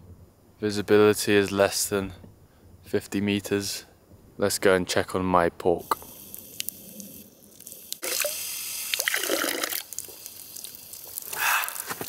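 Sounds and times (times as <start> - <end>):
water dripping: 5.8 - 12.0.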